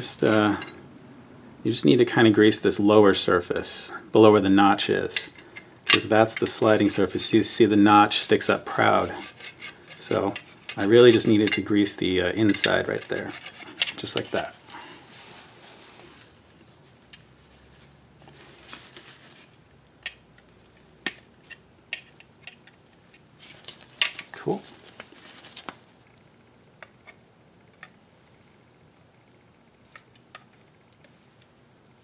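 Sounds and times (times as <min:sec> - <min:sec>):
metal parts clicking and clinking: 0:12.4 - 0:14.4.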